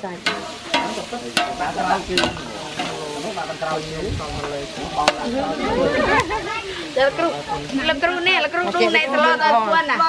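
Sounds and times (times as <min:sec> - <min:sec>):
paste sizzling in oil: 0:00.0 - 0:10.0
ladle clanking against pot: 0:00.2 - 0:03.0
ladle scraping pot: 0:00.2 - 0:03.3.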